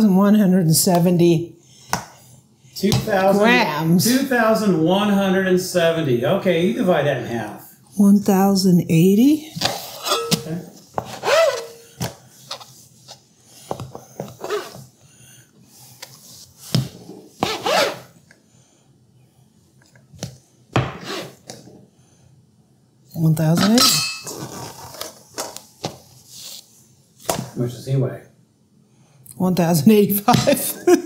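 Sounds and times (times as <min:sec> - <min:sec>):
metal bowl clinking: 0:10.0 - 0:10.8, 0:23.7 - 0:24.4.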